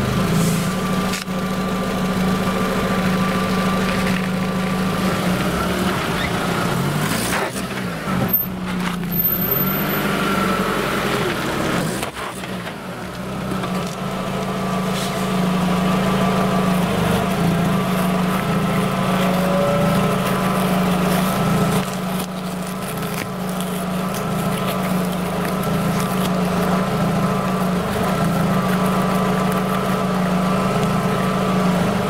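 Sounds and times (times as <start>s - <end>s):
car engine idling: 0.0s - 7.1s, 7.7s - 32.0s
crackling handling sounds: 11.9s - 31.6s.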